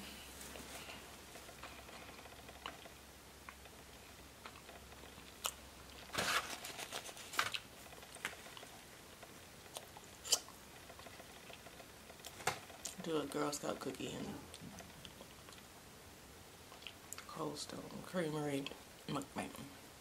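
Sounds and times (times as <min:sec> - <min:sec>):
chewing: 0:01.5 - 0:06.1, 0:06.9 - 0:13.0, 0:14.5 - 0:15.7, 0:16.7 - 0:17.3
paper napkin crinkling: 0:06.0 - 0:08.7.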